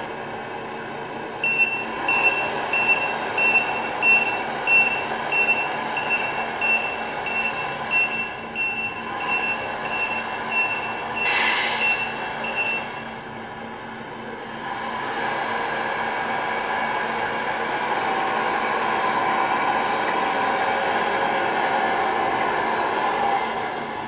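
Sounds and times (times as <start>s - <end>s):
simulated diesel engine sound: 0.0s - 24.0s
reversing beeper: 1.4s - 13.2s
air brake hiss: 11.2s - 12.2s, 12.9s - 13.3s.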